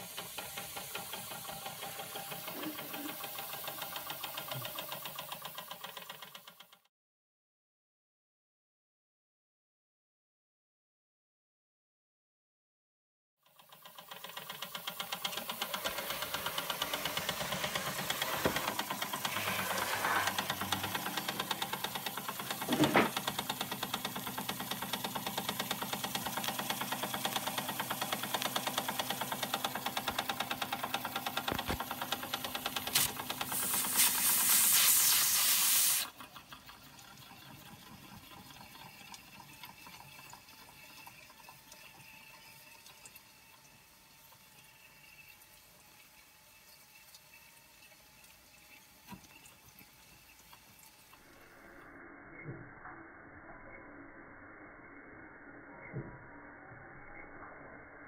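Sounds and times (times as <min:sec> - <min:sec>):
toy steam engine chuffing: 0:00.0 - 0:06.9, 0:13.4 - 0:41.0
loud steam hiss: 0:32.9 - 0:36.1.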